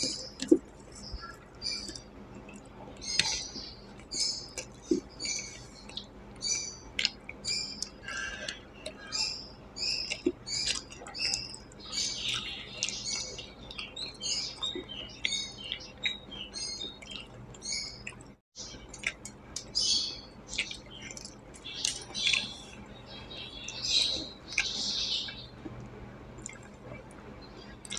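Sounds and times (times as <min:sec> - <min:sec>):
wet mouth eating sounds: 0:00.0 - 0:06.1, 0:06.9 - 0:16.2, 0:16.8 - 0:19.7, 0:20.5 - 0:22.8, 0:26.4 - 0:27.9.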